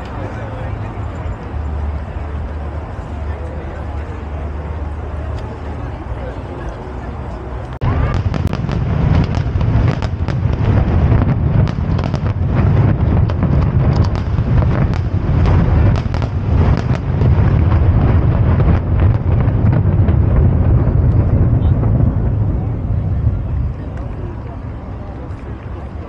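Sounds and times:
continuous low rumble: 0.0s - 26.0s
fireworks bangs and crackles: 7.8s - 26.0s.

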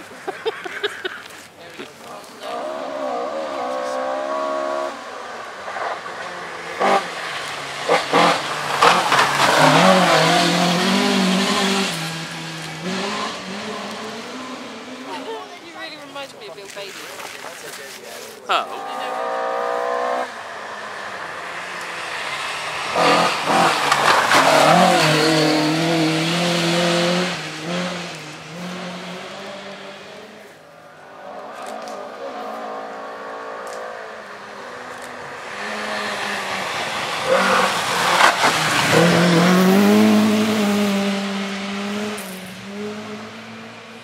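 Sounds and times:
rally cars passing at speed: 1.9s - 16.2s, 18.5s - 44.0s
tyres on loose gravel: 15.3s - 18.6s.

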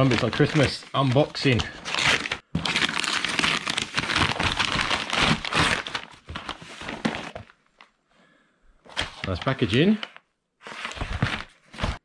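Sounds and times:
paper tearing and crumpling: 0.0s - 7.4s.

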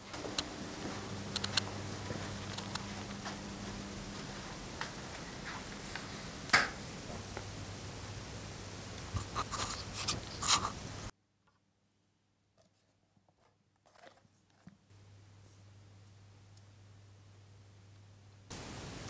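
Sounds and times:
steady hiss: 0.0s - 11.1s, 14.9s - 19.0s
sharp clicks and taps: 1.3s - 1.8s.

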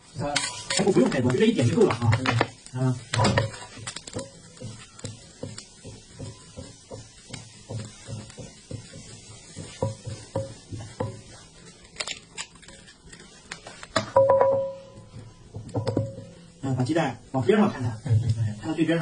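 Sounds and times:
metal scraper knocking on griddle: 0.4s - 11.3s, 14.0s - 16.4s.

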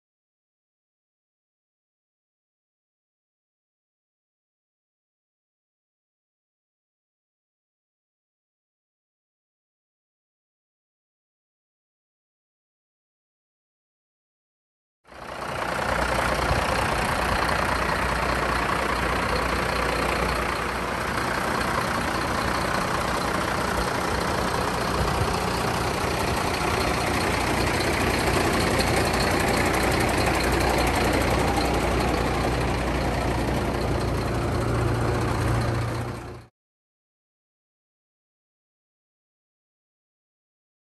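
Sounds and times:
diesel truck engine idling: 15.1s - 36.5s.

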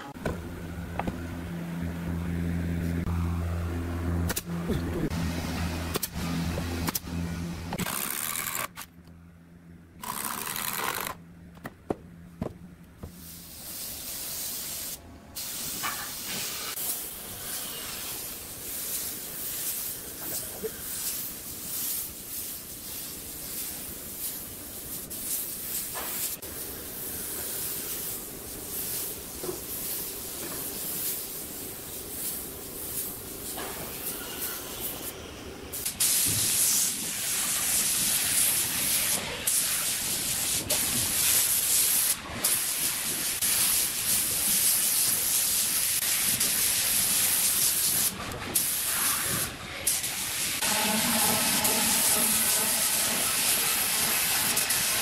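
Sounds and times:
low hum: 0.0s - 10.0s, 50.6s - 54.4s
spray gun hissing: 13.2s - 33.5s, 35.7s - 55.0s.

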